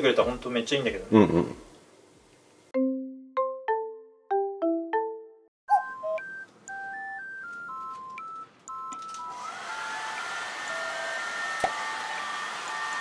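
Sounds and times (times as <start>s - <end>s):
electronic beeping melody: 5.7s - 10.0s
hair dryer motor whine: 9.2s - 13.0s.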